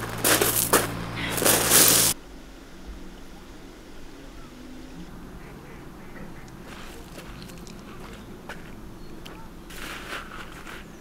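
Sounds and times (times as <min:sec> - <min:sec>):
boots crunching on gravel: 0:00.0 - 0:02.2, 0:06.7 - 0:11.0
quiet outdoor background: 0:00.0 - 0:11.0.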